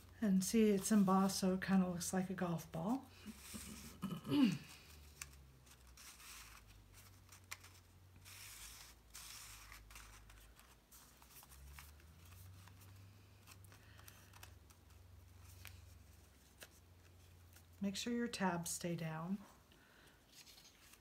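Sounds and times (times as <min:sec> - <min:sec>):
paper rustling and clicking: 0:04.9 - 0:17.7.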